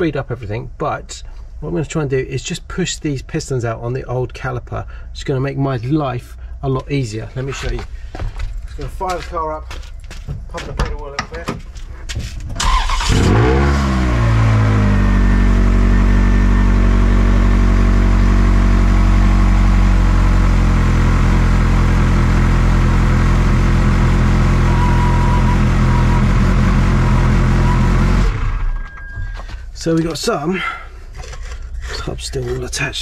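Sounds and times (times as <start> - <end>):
car engine revving and idling: 12.6 - 28.7.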